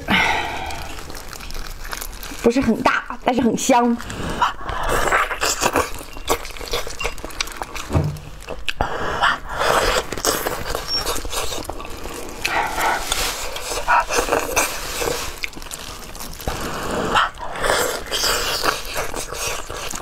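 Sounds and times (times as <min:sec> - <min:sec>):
wet chewing: 0:00.0 - 0:20.0
lip smacking: 0:08.5 - 0:20.0.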